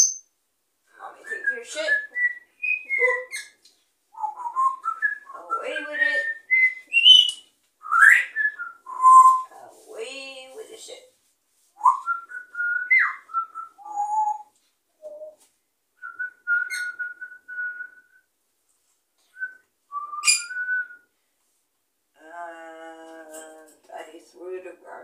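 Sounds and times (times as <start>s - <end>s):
parrot whistling: 1.9s - 3.6s, 4.2s - 9.5s, 16.0s - 17.9s, 19.4s - 20.9s.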